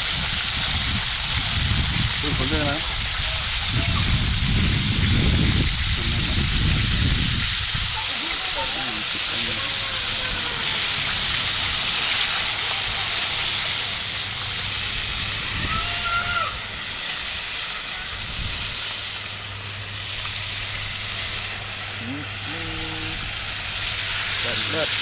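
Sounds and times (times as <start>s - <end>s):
food frying hiss: 0.0s - 25.0s
faint pitched call: 8.6s - 11.0s, 15.5s - 16.7s.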